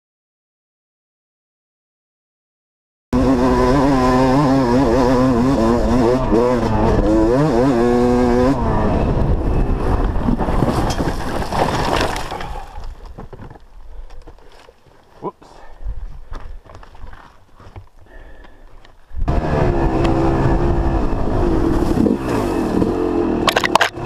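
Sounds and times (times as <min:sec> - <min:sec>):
dirt bike engine revving: 0:03.2 - 0:10.9, 0:19.2 - 0:24.0
wind: 0:03.2 - 0:24.0
tyre rumble: 0:09.3 - 0:15.0.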